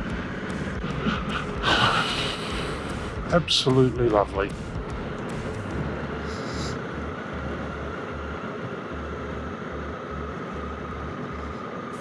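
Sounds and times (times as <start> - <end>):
motorcycle engine running: 0.0 - 11.6
steady whine: 0.0 - 12.0
road and wind noise: 3.4 - 12.0.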